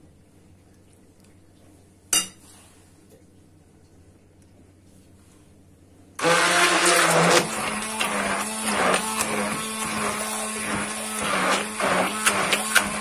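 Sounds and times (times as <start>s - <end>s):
immersion blender motor whirring: 6.2s - 13.0s.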